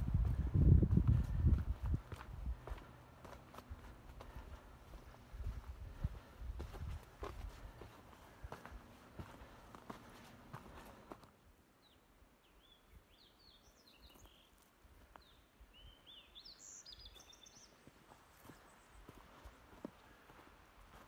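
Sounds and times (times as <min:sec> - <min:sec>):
songbird chirps and buzzy trill: 0:11.7 - 0:19.3.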